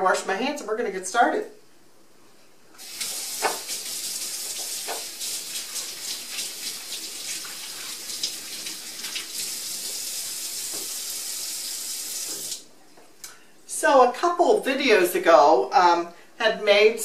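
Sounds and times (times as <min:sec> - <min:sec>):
faucet running into metal sink: 0:02.8 - 0:12.6.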